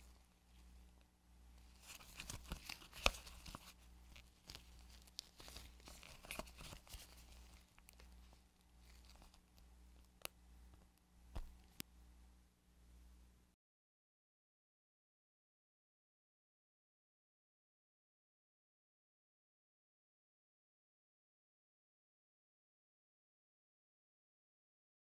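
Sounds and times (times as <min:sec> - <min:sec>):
soft tearing of gummy candy: 0:01.8 - 0:10.3.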